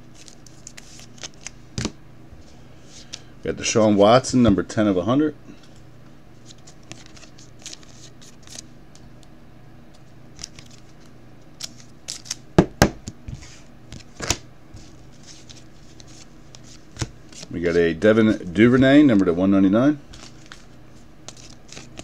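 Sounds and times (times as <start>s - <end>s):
cards rustling: 0.0s - 2.0s, 6.4s - 9.0s, 10.3s - 12.4s, 13.3s - 19.4s, 20.0s - 22.0s.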